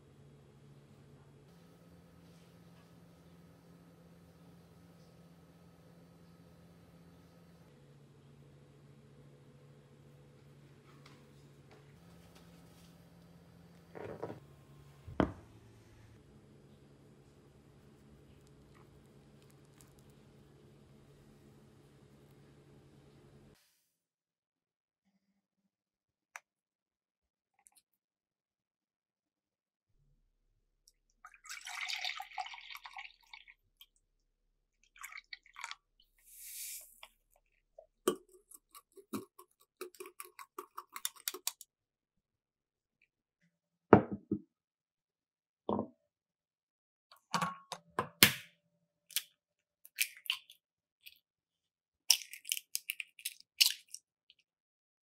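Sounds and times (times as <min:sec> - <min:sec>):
milk pouring into a cup: 0:16.8 - 0:20.8, 0:31.2 - 0:33.7.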